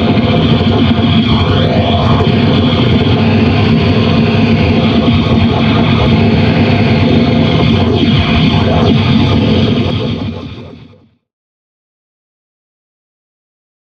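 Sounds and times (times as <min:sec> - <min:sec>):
sweeping pitch glides: 0:00.0 - 0:11.0
distorted harsh noise music: 0:00.0 - 0:11.2.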